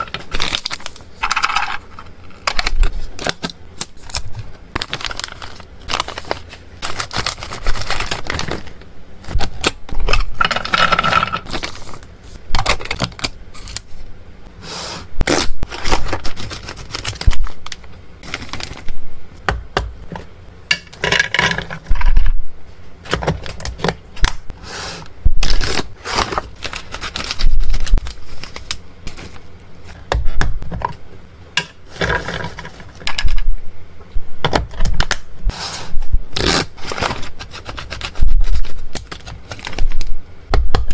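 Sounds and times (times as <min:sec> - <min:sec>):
plastic pouch crinkling: 0:00.0 - 0:13.9, 0:15.4 - 0:18.9, 0:25.4 - 0:29.4.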